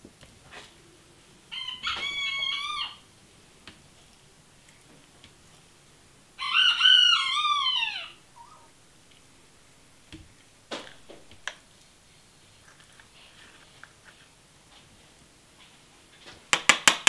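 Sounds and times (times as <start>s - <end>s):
rooster crowing: 1.5s - 3.1s, 6.3s - 8.7s.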